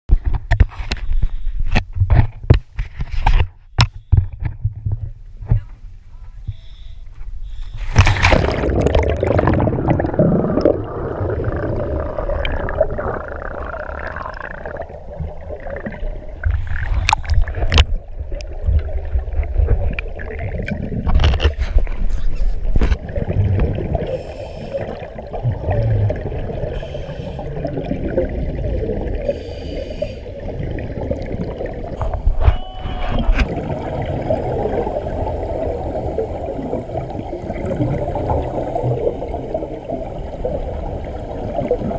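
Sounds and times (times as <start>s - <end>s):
low underwater rumble: 7.5s - 41.9s
splash into water: 7.9s - 9.8s
gurgling bubbles: 7.9s - 41.9s
regulator breathing: 26.7s - 27.6s, 29.2s - 30.4s.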